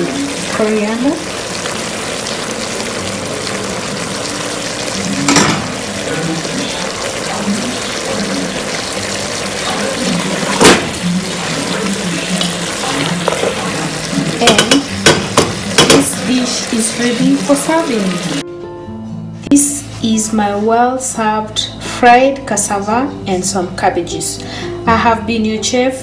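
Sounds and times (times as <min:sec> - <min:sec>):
food sizzling in a frying pan: 0:00.0 - 0:18.4
wooden spoon knocking on a pan: 0:13.2 - 0:13.6, 0:14.4 - 0:16.2.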